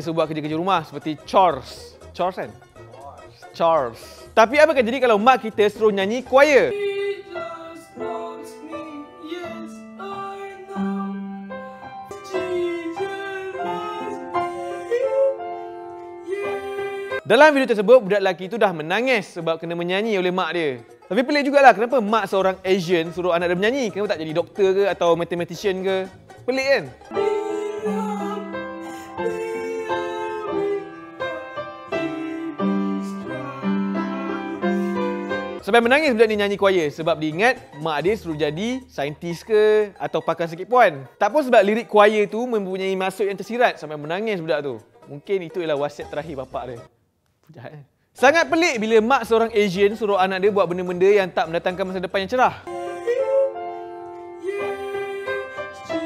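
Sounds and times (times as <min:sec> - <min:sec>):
piano accompaniment: 0:04.5 - 0:17.6, 0:20.4 - 0:37.4, 0:52.6 - 0:56.0
boy singing while crying: 0:06.7 - 0:15.4, 0:16.2 - 0:17.3, 0:27.1 - 0:35.1, 0:52.7 - 0:53.7, 0:54.4 - 0:56.0.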